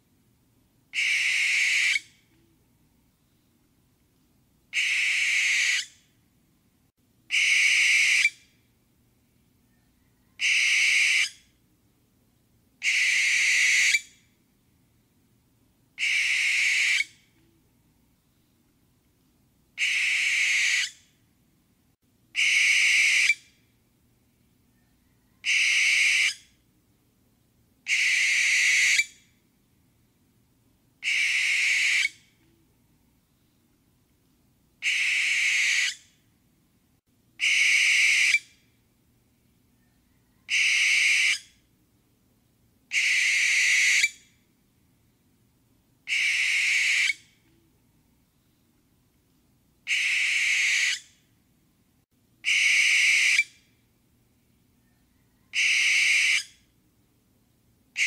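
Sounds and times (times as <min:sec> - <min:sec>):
barn owl screeching: 0:01.0 - 0:02.1, 0:04.7 - 0:06.0, 0:07.3 - 0:08.4, 0:10.2 - 0:11.4, 0:12.8 - 0:14.1, 0:16.0 - 0:17.2, 0:19.8 - 0:21.0, 0:22.4 - 0:23.4, 0:25.0 - 0:26.5, 0:27.9 - 0:29.2, 0:31.0 - 0:32.2, 0:34.8 - 0:36.0, 0:37.4 - 0:38.5, 0:40.1 - 0:41.5, 0:42.9 - 0:44.2, 0:46.1 - 0:47.3, 0:49.9 - 0:51.1, 0:52.4 - 0:53.6, 0:55.4 - 0:56.6.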